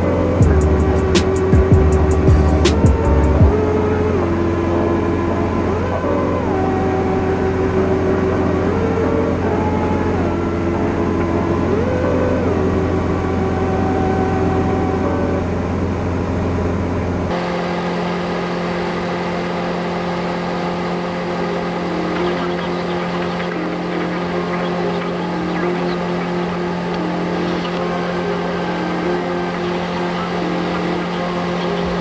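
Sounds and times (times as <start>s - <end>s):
background music: 0.0s - 12.0s
aircraft engine and propeller drone: 0.0s - 32.0s.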